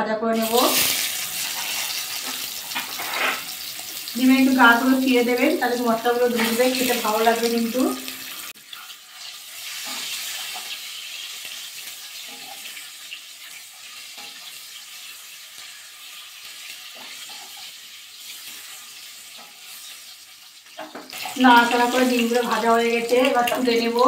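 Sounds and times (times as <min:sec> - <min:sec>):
eggs sizzling in oil: 0:00.4 - 0:24.0
spatula scraping and tapping: 0:01.5 - 0:03.5, 0:14.1 - 0:14.5, 0:16.9 - 0:17.7, 0:19.3 - 0:19.9.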